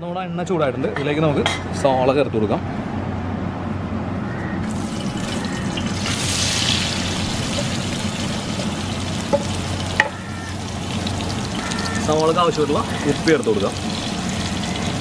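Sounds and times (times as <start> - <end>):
onions sizzling in hot oil: 4.6 - 15.0.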